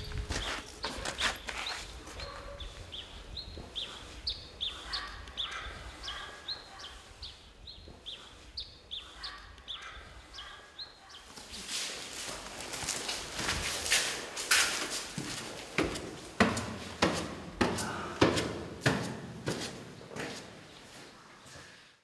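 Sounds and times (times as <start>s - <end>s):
bird chirping: 0.0s - 11.4s.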